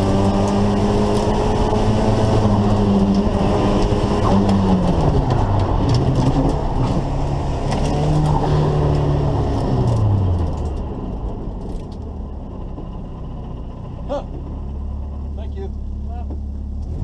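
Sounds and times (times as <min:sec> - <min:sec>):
car engine under load: 0:00.0 - 0:17.0.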